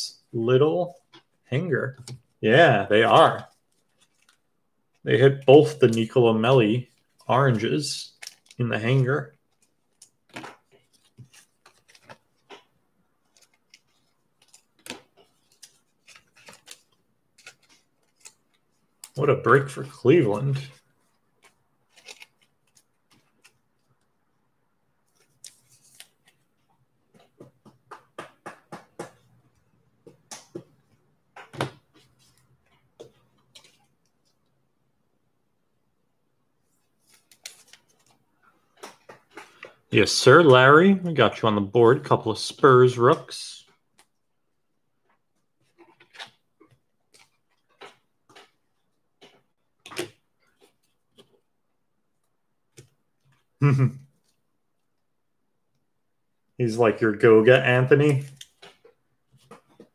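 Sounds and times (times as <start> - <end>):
cards clicking and rustling: 0.9 - 24.1, 25.1 - 34.5, 36.8 - 40.8, 45.1 - 51.5, 57.8 - 59.9
trading cards clicking and tapping: 27.1 - 32.2, 38.6 - 39.8.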